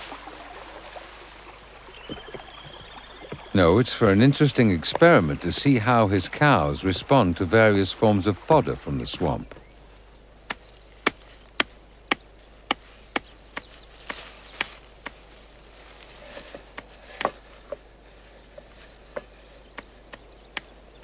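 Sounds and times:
blade chopping plants on a board: 0:10.5 - 0:15.2, 0:16.5 - 0:17.8, 0:19.2 - 0:20.8.

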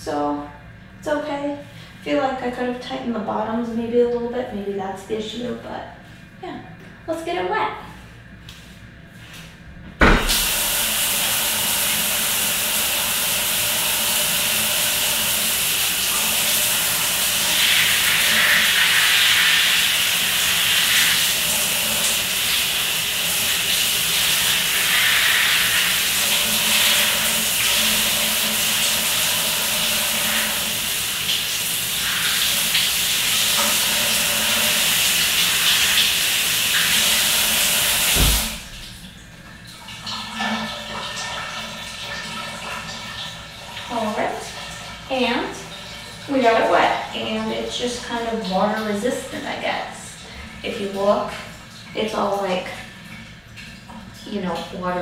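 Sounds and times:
low thump: 0:10.0 - 0:10.4
shower spray hissing: 0:10.2 - 0:38.8.

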